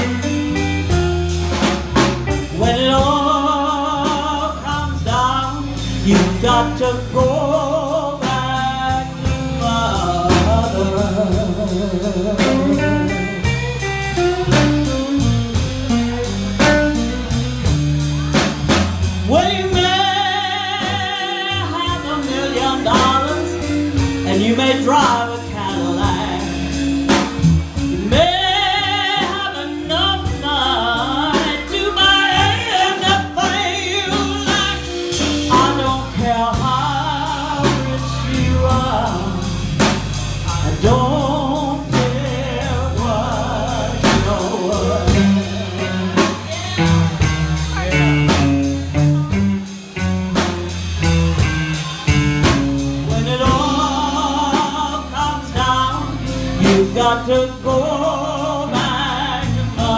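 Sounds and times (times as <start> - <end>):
bass line: 0.0 - 59.9
steady drum beat: 0.0 - 59.9
lead vocal with vibrato: 19.2 - 49.0, 53.0 - 59.9.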